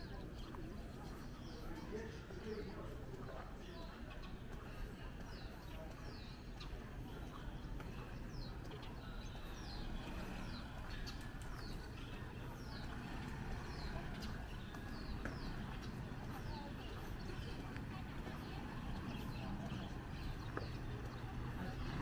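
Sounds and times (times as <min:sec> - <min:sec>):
low hum of street noise: 0:00.0 - 0:22.0.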